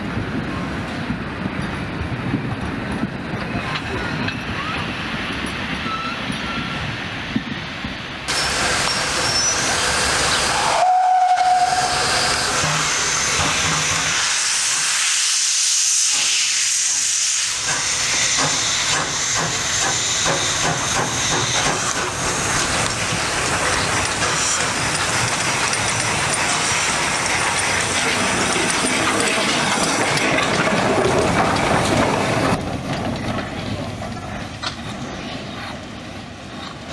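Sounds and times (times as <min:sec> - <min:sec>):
steam hissing: 0:05.0 - 0:30.9
steam whistle toot: 0:08.4 - 0:13.1
running gear clicks and clanks: 0:22.8 - 0:35.1.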